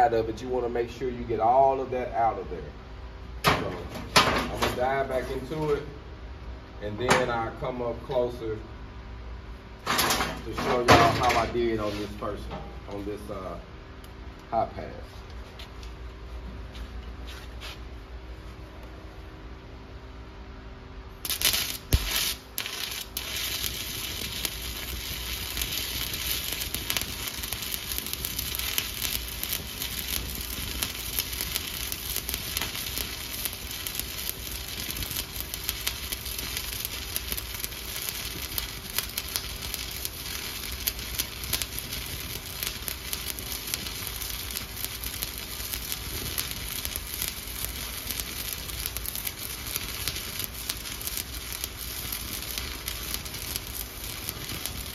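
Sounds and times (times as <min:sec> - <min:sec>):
welding arc striking pop: 0:03.4 - 0:04.8, 0:21.2 - 0:54.9
welding arc crackling: 0:21.1 - 0:54.9.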